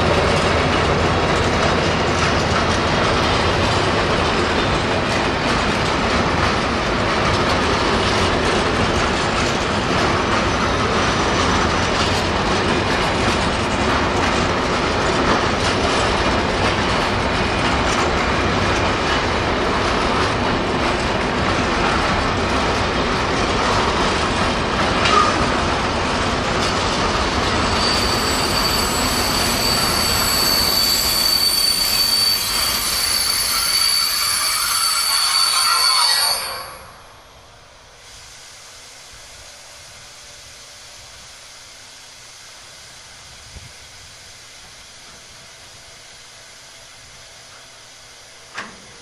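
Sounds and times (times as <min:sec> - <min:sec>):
train wagon clank: 0:00.0 - 0:25.8, 0:48.4 - 0:49.0
train wheels rumbling on rails: 0:00.0 - 0:49.0
high brake squeal: 0:27.6 - 0:37.1.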